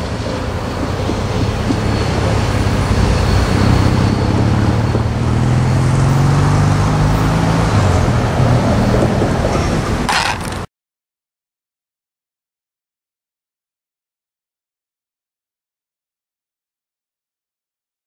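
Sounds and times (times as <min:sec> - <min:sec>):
locomotive engine hum: 0:00.0 - 0:10.7.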